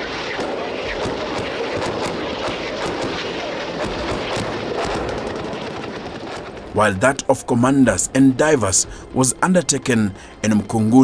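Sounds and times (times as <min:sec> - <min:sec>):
munitions cracks and blasts: 0:00.0 - 0:06.7.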